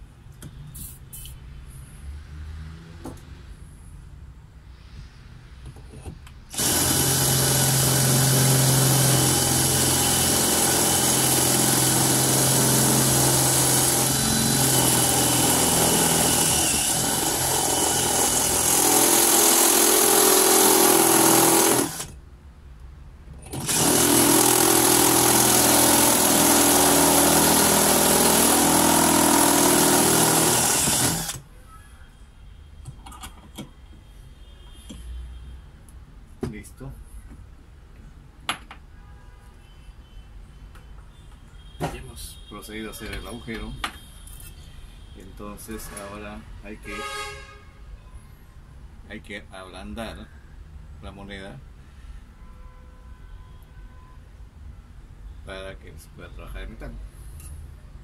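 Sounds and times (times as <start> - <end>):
drill bit cutting metal: 6.5 - 22.1, 23.5 - 31.4.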